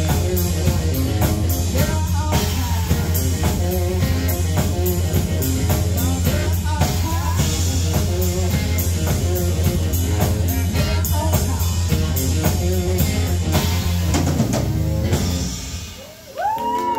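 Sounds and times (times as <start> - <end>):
electric bass line: 0.0 - 16.1
electric guitar: 0.0 - 16.9.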